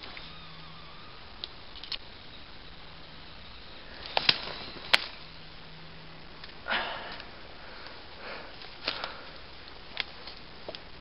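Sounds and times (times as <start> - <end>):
branches brushing: 0.0 - 11.0
twigs snapping: 3.8 - 5.3, 8.6 - 10.9.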